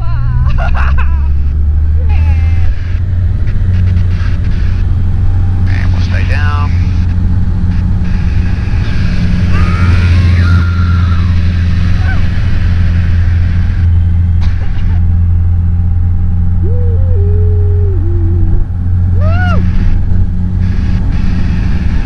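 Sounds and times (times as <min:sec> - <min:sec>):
propeller plane engine droning: 0:00.0 - 0:22.0
wavering high-pitched sounds: 0:16.6 - 0:19.7.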